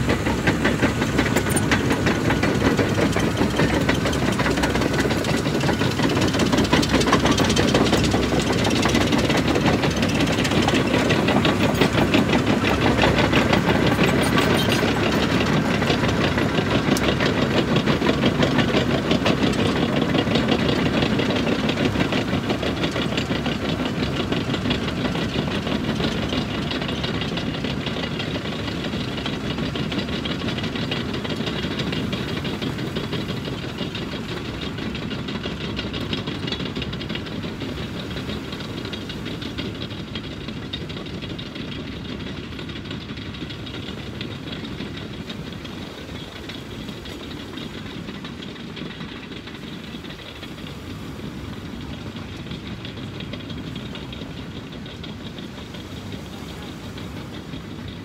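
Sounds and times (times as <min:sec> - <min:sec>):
tractor engine driving past: 0:00.0 - 0:58.0.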